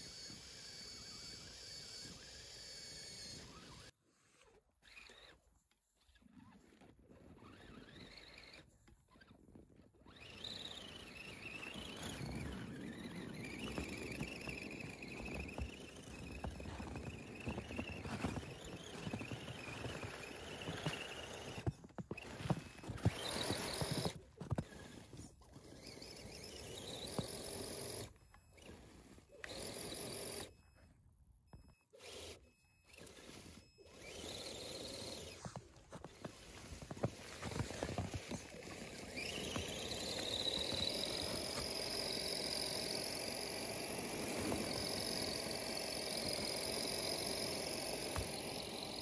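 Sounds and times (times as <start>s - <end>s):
electric motor and gears whining: 0.0s - 3.9s, 10.1s - 30.8s, 31.6s - 49.0s
tyres crunching in snow: 10.0s - 28.1s, 33.0s - 49.0s.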